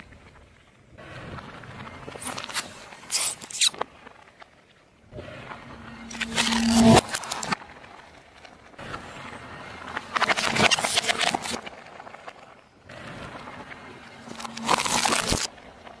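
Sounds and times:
plastic crackling under a tyre: 2.0s - 4.9s, 6.0s - 9.2s, 9.8s - 12.8s, 14.1s - 16.0s
tyre and road noise: 5.1s - 16.0s.

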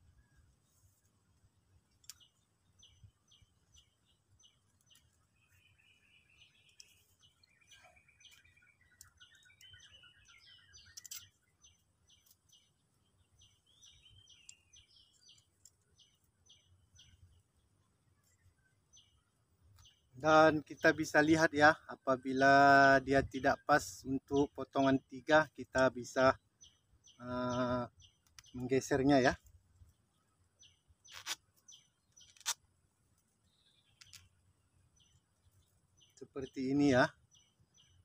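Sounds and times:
bird trilling song: 2.0s - 19.2s, 19.8s - 32.6s, 33.4s - 38.0s
bird chirps: 2.0s - 32.6s, 33.4s - 38.0s
faint sharp clicks: 28.2s - 28.7s.

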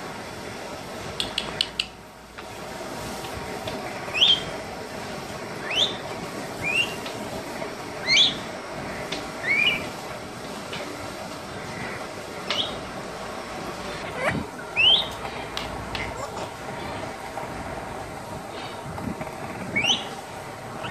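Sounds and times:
sharp clicks: 1.2s - 2.0s
parrot whistling: 4.1s - 4.5s, 5.6s - 6.0s, 6.6s - 7.0s, 8.0s - 8.5s, 9.4s - 9.9s, 12.5s - 12.8s, 14.0s - 15.2s, 19.7s - 20.2s.

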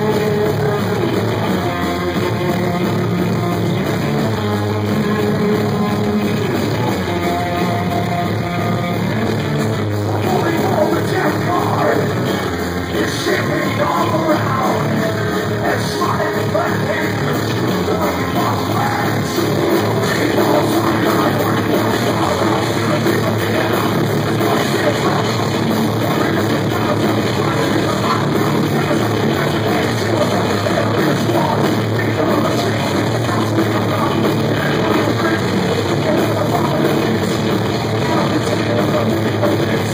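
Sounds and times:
distorted electric guitar: 0.0s - 39.9s
drums: 0.0s - 39.9s
keyboards: 0.0s - 39.9s
person singing and yelling: 10.1s - 39.9s.

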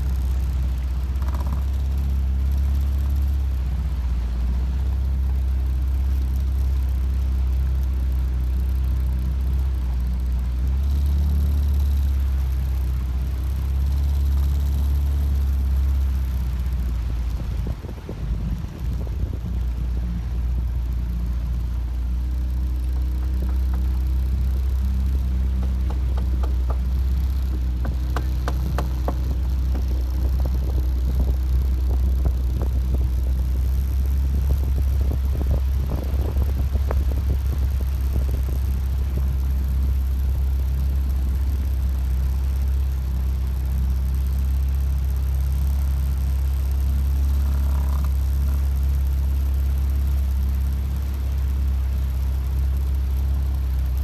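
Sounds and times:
motorboat engine droning: 0.0s - 54.0s
short knocks and clicks: 1.2s - 1.7s, 25.6s - 26.9s, 27.5s - 30.0s.

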